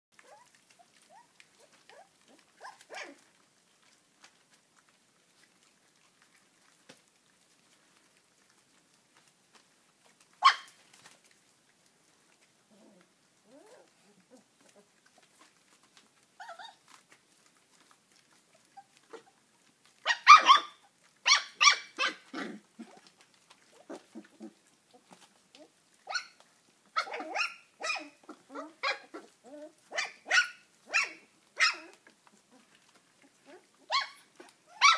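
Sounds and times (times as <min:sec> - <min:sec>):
puppies yapping: 0:00.2 - 0:03.3, 0:10.4 - 0:10.8, 0:16.4 - 0:17.0, 0:20.0 - 0:34.9.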